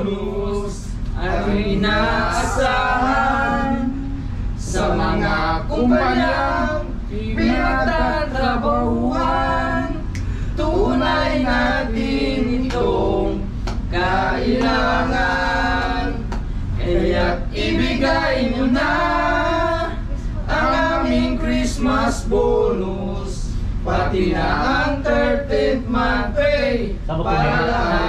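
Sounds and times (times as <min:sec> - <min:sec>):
men singing together: 0:00.0 - 0:28.0.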